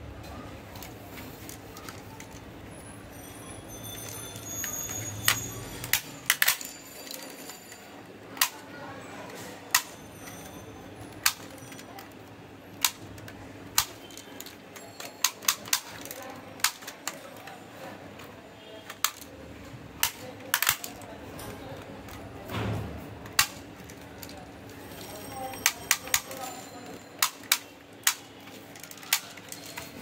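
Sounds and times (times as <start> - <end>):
toy shotgun plastic clicks: 5.3 - 7.2, 8.4 - 8.7, 9.7 - 10.0, 11.2 - 11.8, 12.8 - 17.5, 18.9 - 19.3, 20.0 - 21.1, 23.2 - 24.4, 25.6 - 26.6, 27.2 - 30.0.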